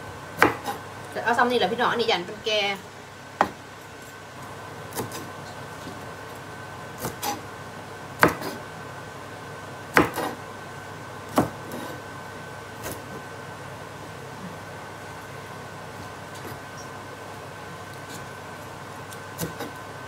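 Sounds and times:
knife chopping on wooden board: 0.4 - 0.8, 4.9 - 5.3, 7.0 - 7.4, 8.2 - 8.6, 9.9 - 10.4, 11.3 - 12.0, 19.4 - 19.8.

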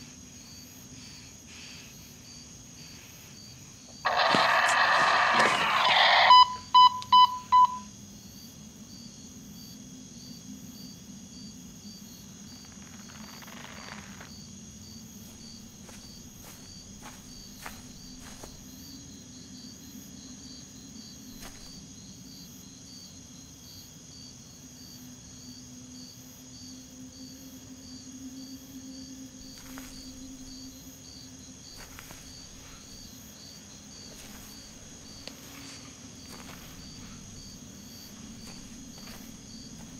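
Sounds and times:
crickets chirping: 0.0 - 39.9
walkie-talkie beeps: 4.1 - 7.9
low even hum: 28.0 - 39.9.

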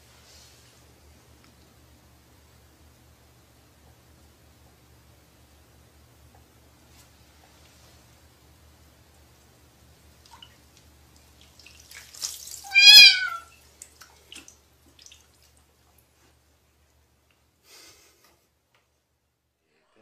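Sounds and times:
water splashing and dripping: 9.1 - 16.2
cat meowing: 12.6 - 13.5.

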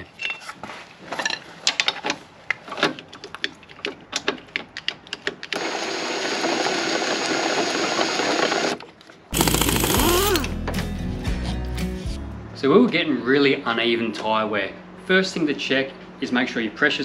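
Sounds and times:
power drill running: 5.6 - 10.6
music: 9.9 - 12.9.

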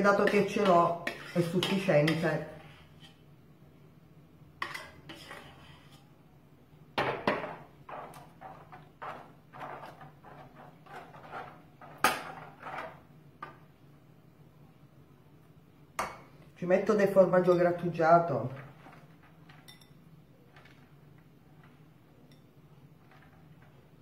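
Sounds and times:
utensil scraping a baking dish: 0.0 - 3.3, 4.6 - 6.2, 7.3 - 13.1, 17.8 - 24.0.

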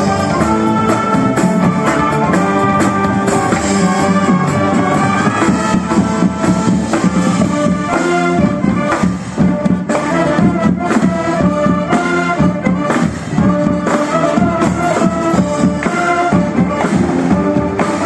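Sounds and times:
mallet percussion: 0.0 - 8.2
brass band playing: 0.0 - 18.0
drum kit: 0.0 - 18.0.

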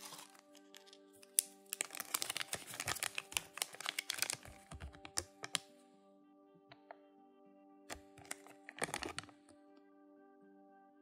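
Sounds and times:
paper crinkling: 0.0 - 5.6, 7.9 - 9.4.

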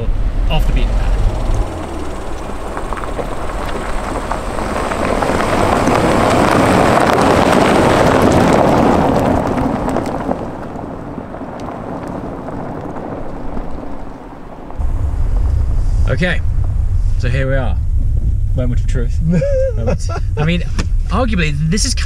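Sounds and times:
tyres crunching over gravel: 0.4 - 15.0.

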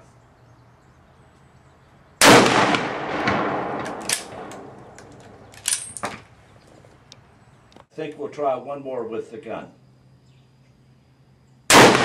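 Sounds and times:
rifle shot echoing: 2.2 - 5.8, 11.7 - 12.0
rifle action clicks: 3.8 - 6.2.

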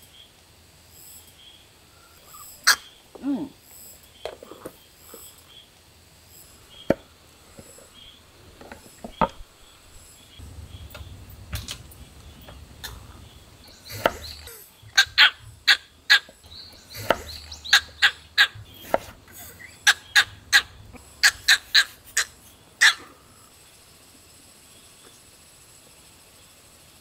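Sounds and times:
knife chopping on wooden board: 13.9 - 15.6, 16.9 - 17.9, 18.6 - 19.2.

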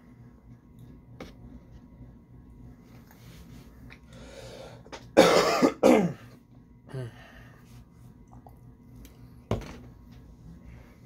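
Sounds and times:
man clearing throat: 5.2 - 6.3.

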